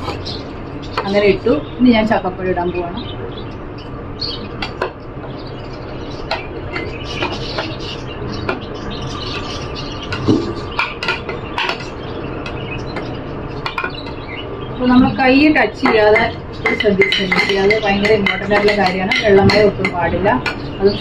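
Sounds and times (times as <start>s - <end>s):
plastic spoon tapping and scraping plate: 15.8s - 20.6s.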